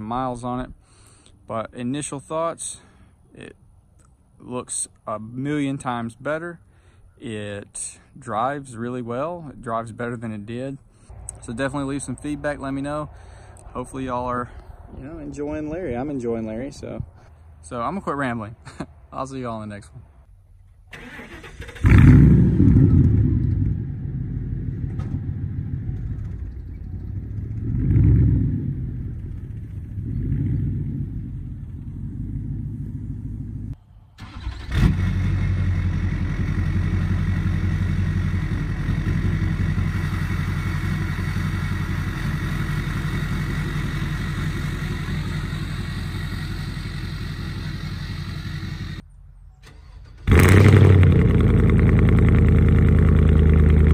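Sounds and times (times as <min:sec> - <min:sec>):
pickup truck engine pulling away: 0:21.0 - 0:49.0, 0:49.7 - 0:53.9
pickup truck engine revving: 0:21.0 - 0:49.0, 0:50.2 - 0:53.9.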